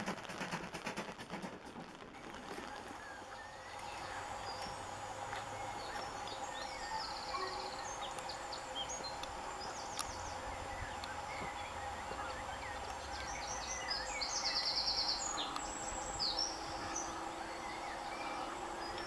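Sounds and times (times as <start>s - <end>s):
distant train rumble: 0.0s - 19.0s
small birds chirping: 1.4s - 19.0s
faint two-note hum: 3.3s - 19.0s.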